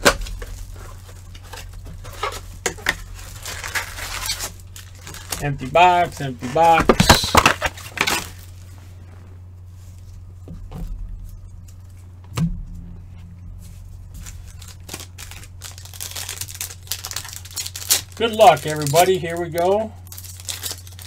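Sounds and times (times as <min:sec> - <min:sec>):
plastic wrapping crinkling and tearing: 0:00.0 - 0:08.7, 0:13.7 - 0:21.0
steady low hum: 0:00.0 - 0:21.0.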